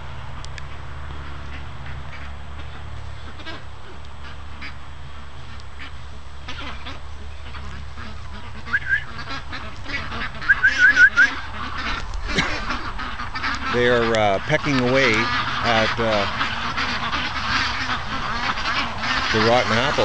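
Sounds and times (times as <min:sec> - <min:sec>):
ducks honking: 0:00.0 - 0:20.0.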